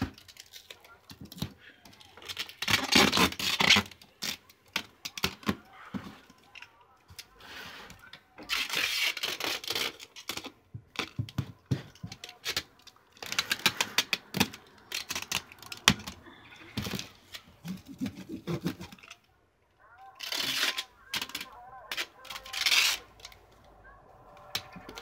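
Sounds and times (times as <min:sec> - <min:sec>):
packing tape ripping off roll: 0:02.2 - 0:05.6, 0:08.4 - 0:10.5, 0:20.2 - 0:23.4
hands rubbing tape and cardboard: 0:02.2 - 0:06.0, 0:08.4 - 0:16.2, 0:16.8 - 0:19.2, 0:20.2 - 0:23.4.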